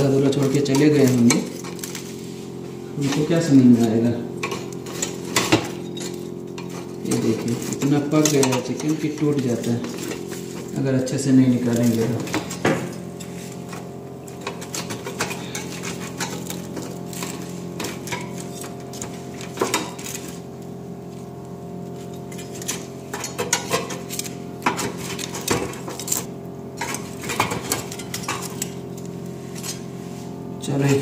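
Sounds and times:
steady low hum: 0:00.0 - 0:31.0
metal tongs clinking: 0:00.3 - 0:02.0, 0:04.4 - 0:10.7, 0:22.2 - 0:29.8.

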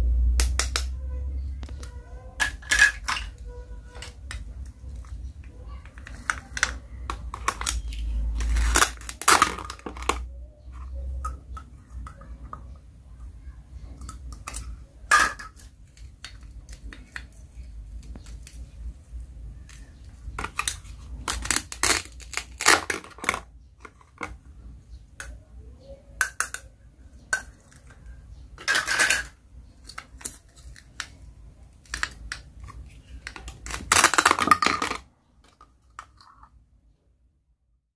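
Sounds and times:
plastic clicks and clacks: 0:01.6 - 0:12.8, 0:13.8 - 0:18.8, 0:26.2 - 0:36.6.

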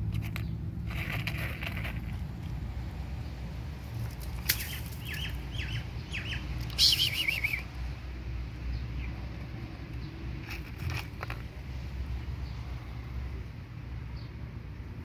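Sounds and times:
small bird chirping: 0:04.3 - 0:07.8.

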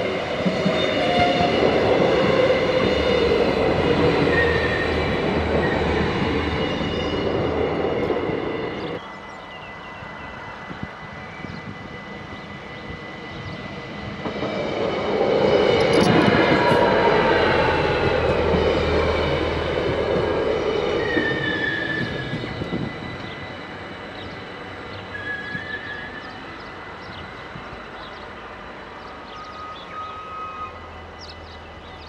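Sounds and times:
train rumbling past: 0:00.0 - 0:32.0
high squeal: 0:15.6 - 0:17.9, 0:20.5 - 0:24.4, 0:25.1 - 0:27.0.

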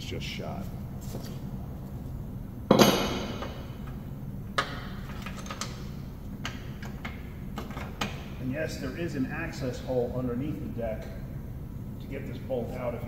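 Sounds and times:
loud metal clank: 0:02.7 - 0:03.6.

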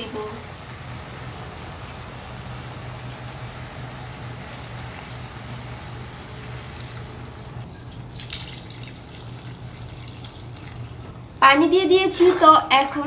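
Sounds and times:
low steady hum: 0:00.0 - 0:13.0
water pouring into frying pan: 0:00.7 - 0:11.1.

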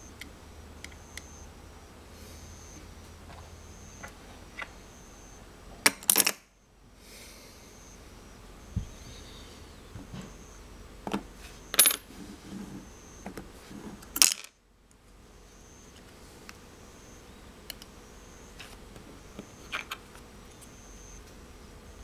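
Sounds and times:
metal magnetic pieces clicking: 0:05.9 - 0:06.5, 0:14.2 - 0:14.6, 0:19.7 - 0:20.1.

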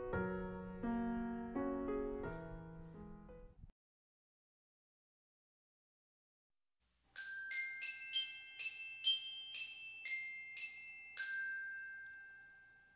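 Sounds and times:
tinkling bell-like melody: 0:07.1 - 0:12.9.

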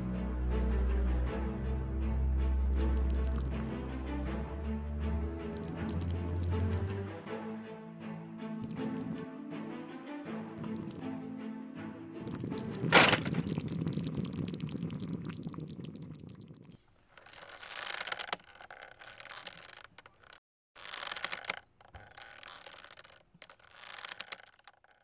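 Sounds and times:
milk boiling and crackling: 0:02.7 - 0:03.7, 0:05.5 - 0:06.9, 0:08.6 - 0:09.2, 0:10.6 - 0:11.0, 0:12.2 - 0:25.0.

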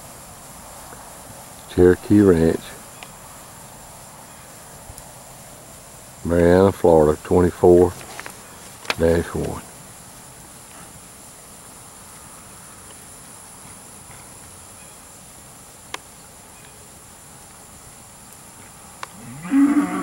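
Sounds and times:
steer mooing: 0:19.1 - 0:20.0.

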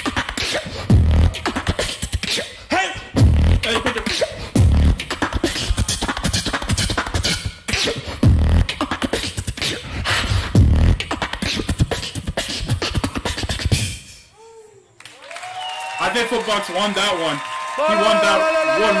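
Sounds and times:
person beatboxing into microphone: 0:00.0 - 0:14.6.

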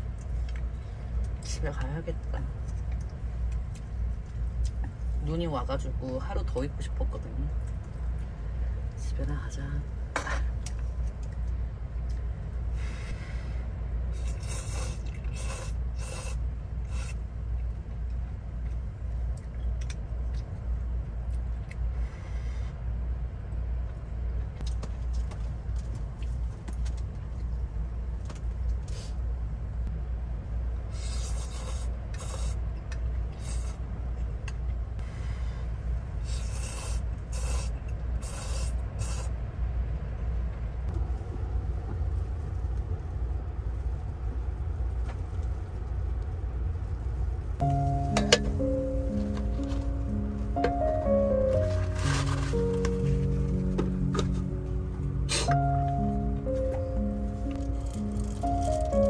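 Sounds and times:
wind and rain on a van: 0:23.0 - 0:30.9, 0:38.8 - 0:47.6.

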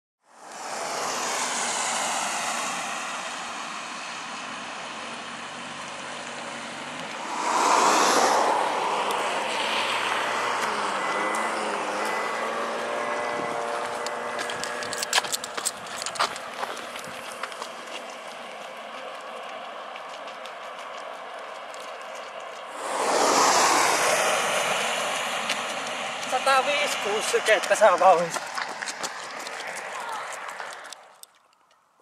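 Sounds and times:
vehicle passing: 0:00.3 - 0:31.3
traffic engine noise: 0:00.3 - 0:31.6
tyre hiss on wet road: 0:00.4 - 0:13.1, 0:22.7 - 0:29.1.

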